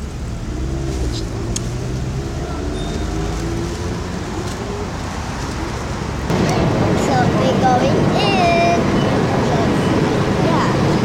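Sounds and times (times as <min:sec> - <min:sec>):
road traffic rumble: 0:00.0 - 0:11.0
faint voices: 0:02.3 - 0:11.0.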